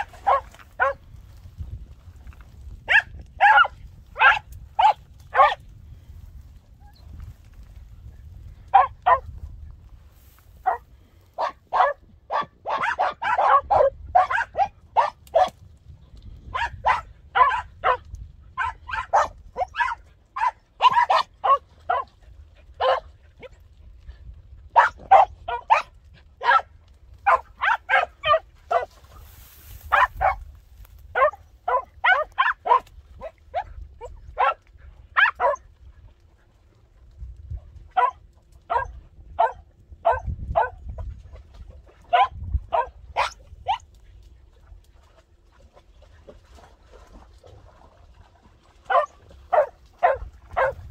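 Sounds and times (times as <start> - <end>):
dog barking sharply: 0.0 - 1.0, 11.4 - 15.5, 18.6 - 22.1, 24.8 - 26.7, 27.3 - 28.9, 31.2 - 32.8, 48.9 - 50.8.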